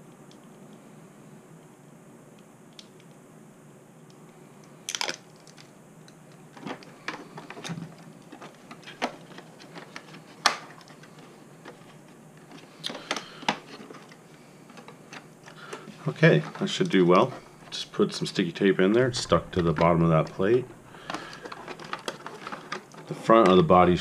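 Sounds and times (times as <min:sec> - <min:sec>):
plastic parts scratching: 0:06.6 - 0:24.0.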